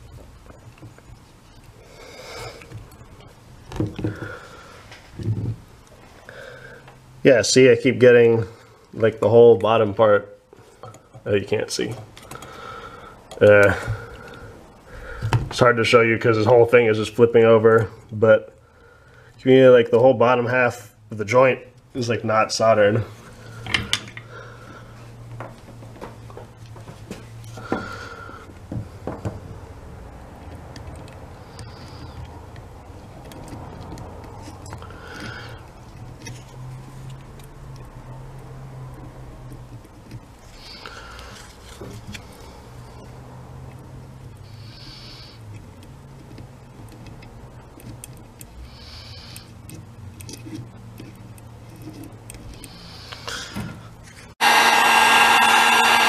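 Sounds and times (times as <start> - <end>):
solder flux sizzling: 54.3 - 56.0.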